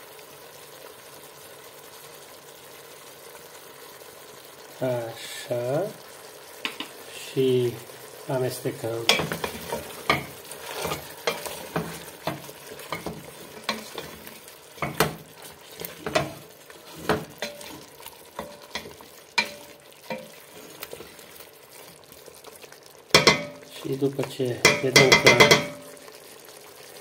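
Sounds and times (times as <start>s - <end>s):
food sizzling in fat: 0.0s - 27.0s
wooden spoon scraping a metal pot: 9.0s - 22.0s.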